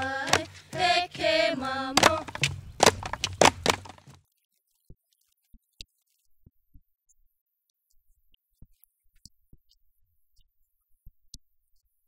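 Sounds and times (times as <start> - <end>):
group chanting: 0.0 - 2.4
gourd drum strikes: 0.0 - 4.2.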